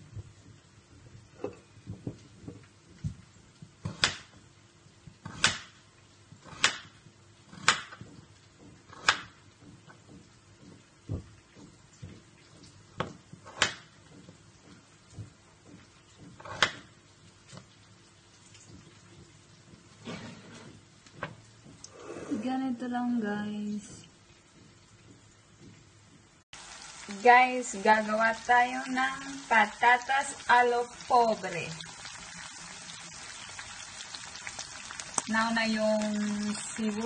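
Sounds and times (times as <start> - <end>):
knife chopping on cutting board: 6.4 - 12.2, 13.0 - 16.9.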